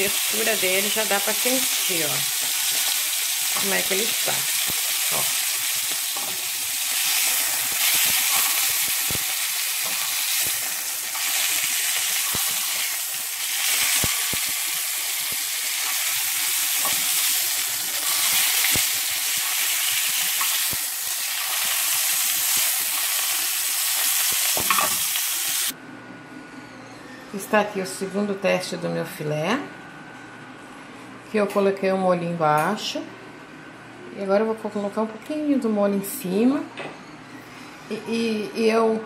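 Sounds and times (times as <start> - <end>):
meat sizzling in a frying pan: 0.0 - 25.8.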